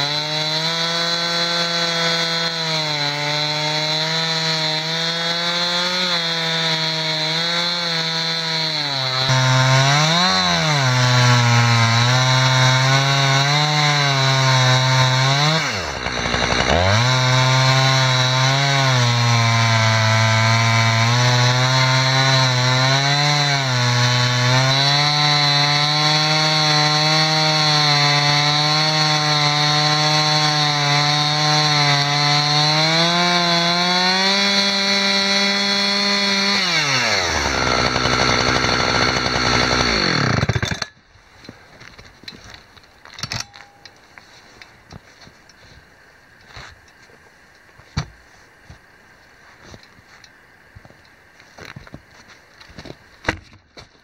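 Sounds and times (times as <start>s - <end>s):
chainsaw cutting through log: 0.0s - 41.0s.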